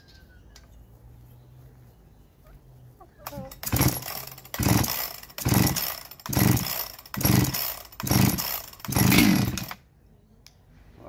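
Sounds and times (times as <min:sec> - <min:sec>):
chainsaw recoil starter pulls: 0:03.3 - 0:09.8.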